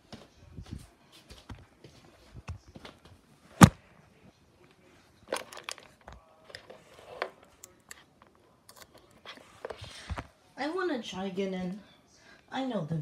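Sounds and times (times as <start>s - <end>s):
handling clicks and rustling: 5.2s - 10.3s.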